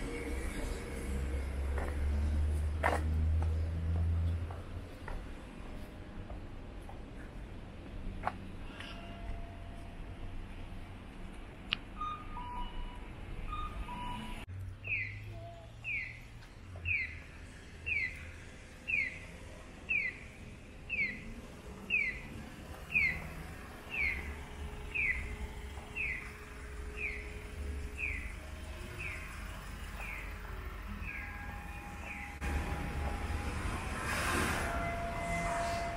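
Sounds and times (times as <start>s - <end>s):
street traffic rumble: 0.0s - 35.9s
crossing signal bird chirp: 12.0s - 16.2s, 17.9s - 20.3s, 20.9s - 21.3s, 21.9s - 34.0s.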